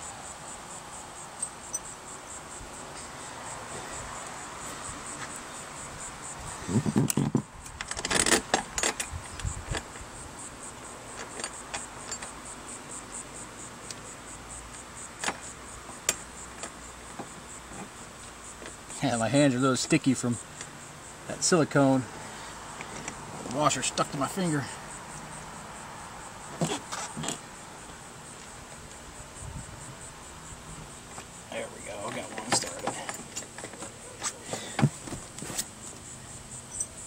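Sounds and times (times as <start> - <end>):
metal hardware clinking: 1.4 - 2.0, 36.7 - 37.0.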